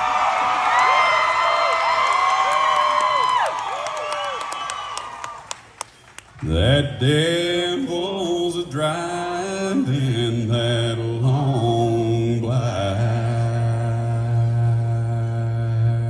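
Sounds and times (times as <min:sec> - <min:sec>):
man singing in deep bass voice: 0:06.4 - 0:16.0.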